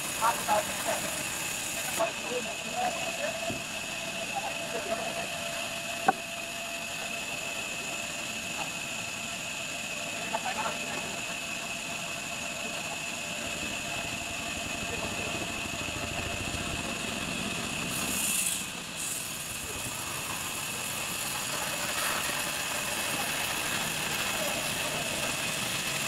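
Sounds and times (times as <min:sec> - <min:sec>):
band saw whining: 0:00.0 - 0:26.0.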